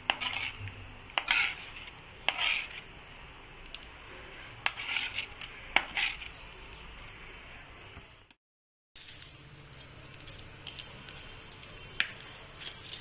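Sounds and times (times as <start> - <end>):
metal spatula scraping pan: 0.0 - 2.9, 4.3 - 6.4.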